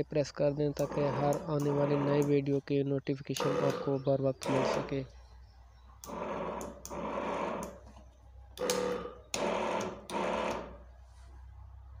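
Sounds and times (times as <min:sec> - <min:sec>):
sprayer pump motor buzzing: 0:00.8 - 0:02.5, 0:03.4 - 0:05.1, 0:06.0 - 0:11.0.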